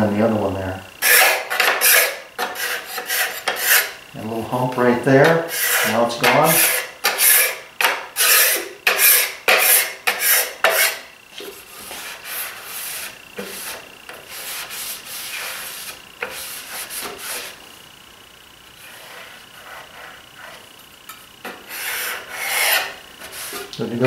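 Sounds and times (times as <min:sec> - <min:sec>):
hand scraper on plywood: 0:01.0 - 0:04.0, 0:05.2 - 0:17.6, 0:21.5 - 0:23.7.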